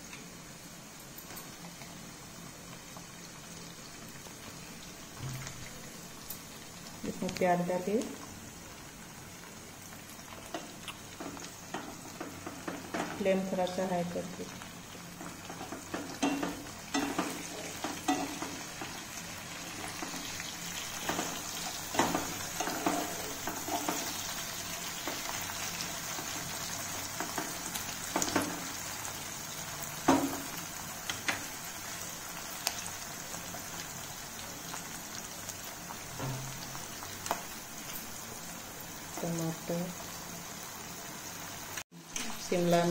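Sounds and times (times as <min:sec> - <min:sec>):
food sizzling in hot oil: 0:00.0 - 0:42.9
spatula scraping and knocking pan: 0:15.2 - 0:19.0, 0:20.8 - 0:24.2.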